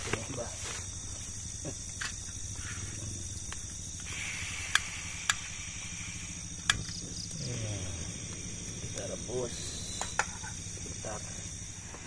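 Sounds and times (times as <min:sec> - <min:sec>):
crickets chirping: 0:00.0 - 0:12.0
gas hissing: 0:00.6 - 0:12.0
stove igniter clicks: 0:04.7 - 0:05.4.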